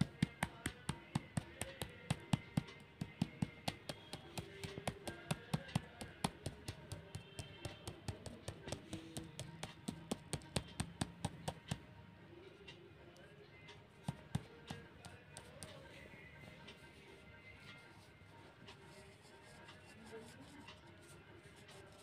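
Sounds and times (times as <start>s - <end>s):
pen tip tapping on paper: 0.0s - 11.8s.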